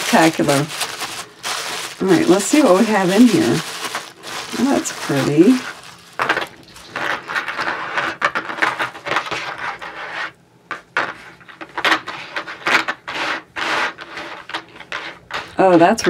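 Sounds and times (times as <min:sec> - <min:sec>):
tissue paper rustling: 0:00.0 - 0:10.3.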